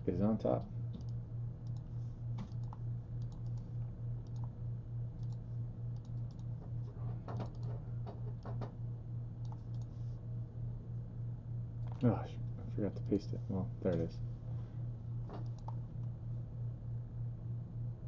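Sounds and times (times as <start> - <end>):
steady low hum: 0.0 - 18.0
computer keyboard keystrokes: 1.0 - 3.6, 4.2 - 4.5, 5.2 - 5.4, 6.0 - 6.5, 7.3 - 8.6, 15.4 - 15.8
mouse clicks: 9.4 - 9.9, 15.4 - 15.8.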